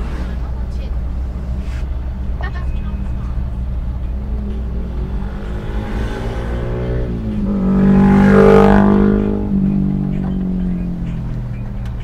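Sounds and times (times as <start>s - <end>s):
vehicle engine revving: 0.0s - 12.0s.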